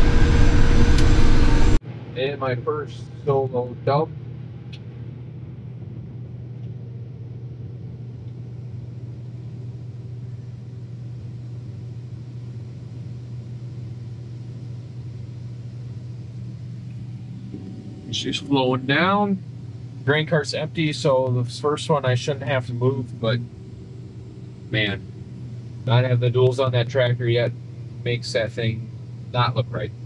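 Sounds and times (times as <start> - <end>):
combine harvester droning: 0.0 - 4.1, 13.2 - 30.0.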